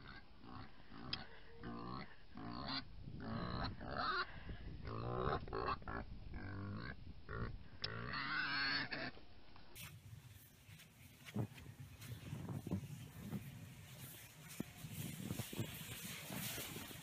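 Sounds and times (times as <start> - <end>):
pigs grunting and oinking: 0.0 - 4.2, 4.9 - 9.1.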